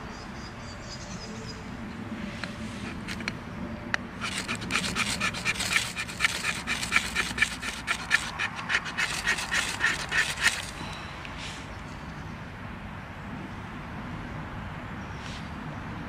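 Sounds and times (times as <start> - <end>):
knife blade scraping: 2.7 - 3.3, 4.2 - 10.8.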